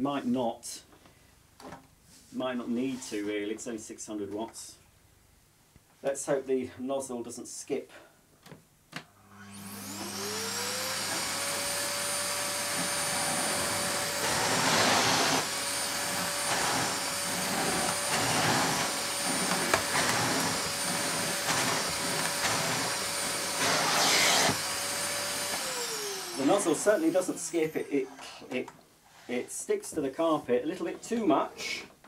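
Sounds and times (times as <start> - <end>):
vacuum cleaner motor whine: 9.2 - 28.3
vacuum nozzle rushing over carpet: 9.3 - 27.8.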